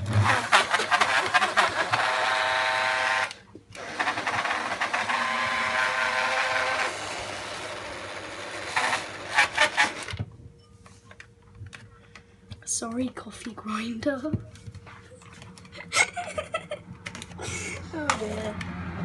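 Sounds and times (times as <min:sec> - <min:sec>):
electric coffee grinder whining: 0:00.0 - 0:10.2.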